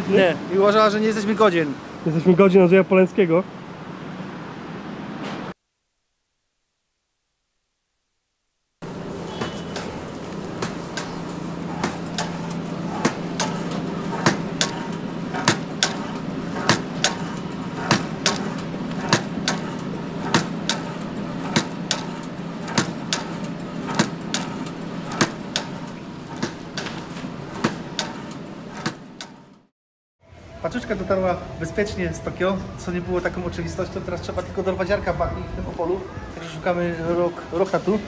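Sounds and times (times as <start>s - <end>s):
steady low hum: 8.8s - 29.6s.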